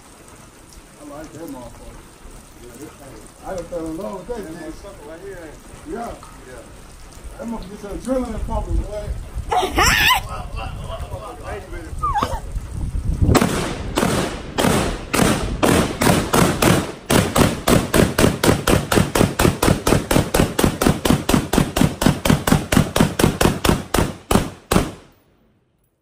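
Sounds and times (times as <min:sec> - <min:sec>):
rapid gunshots: 0:13.3 - 0:25.1.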